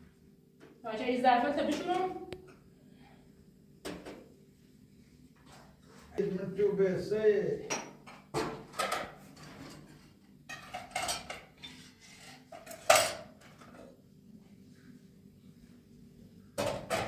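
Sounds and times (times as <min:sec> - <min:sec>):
metal pots and dishes clattering: 0:07.7 - 0:13.8, 0:16.6 - 0:17.0.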